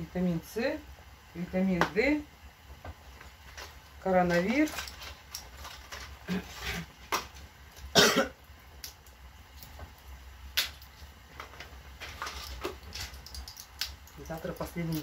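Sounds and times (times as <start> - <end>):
packaging crinkling and clicking: 3.5 - 6.2.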